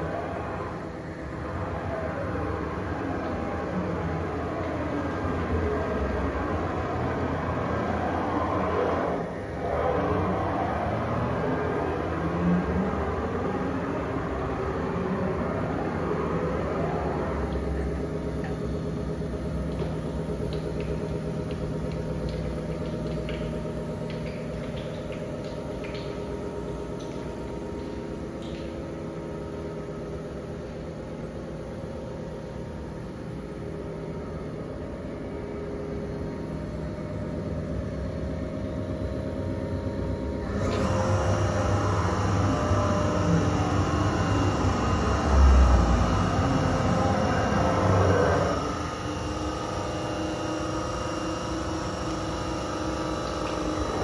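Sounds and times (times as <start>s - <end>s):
mechanical hum with low rumble: 0.0s - 54.0s.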